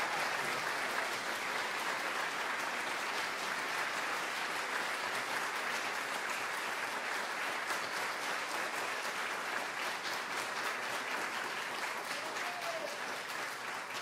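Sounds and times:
audience applauding: 0.0 - 14.0.

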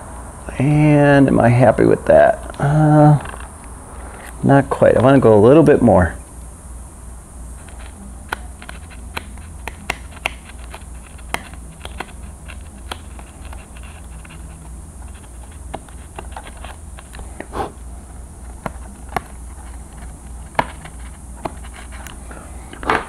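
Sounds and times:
steady low hum: 0.0 - 23.0
knife clicking and scratching in foam: 7.6 - 17.2.

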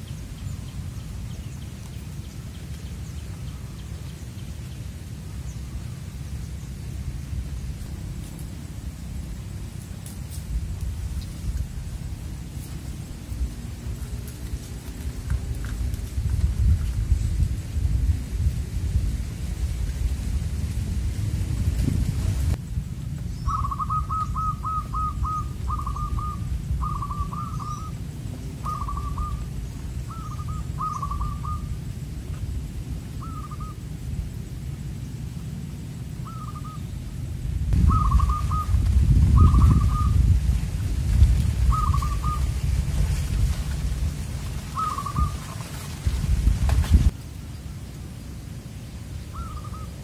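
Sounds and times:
low rumble: 0.0 - 49.8
dove cooing: 23.5 - 31.8, 33.2 - 33.8, 36.2 - 36.8, 37.8 - 40.2, 41.7 - 42.6, 44.6 - 45.9, 49.3 - 50.0.

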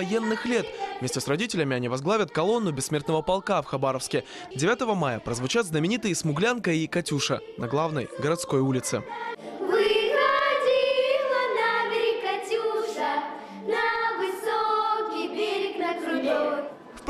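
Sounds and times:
children singing together: 0.0 - 1.5, 7.2 - 17.0.

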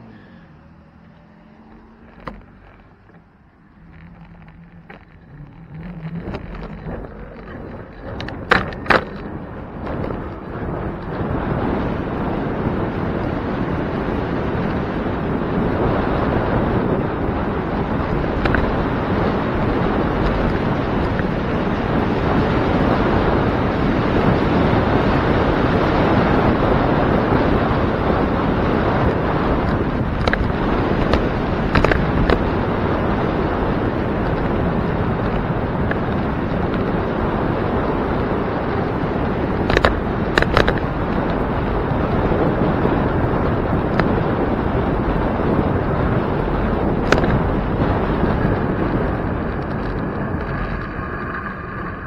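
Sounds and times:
wind rumbling on microphone: 0.0 - 52.0.

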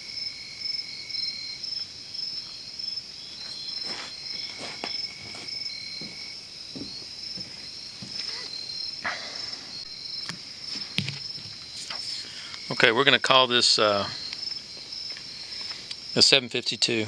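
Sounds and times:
crickets and insects trilling: 0.0 - 17.0
soft knocks and rustles: 3.4 - 8.5, 10.3 - 11.7.

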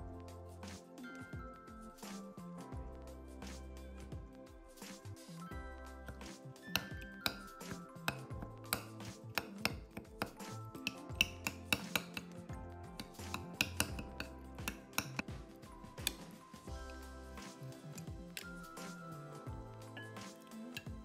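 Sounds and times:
background music: 0.0 - 21.0
metal spoon clinking against glass: 6.7 - 9.8, 10.8 - 12.3.

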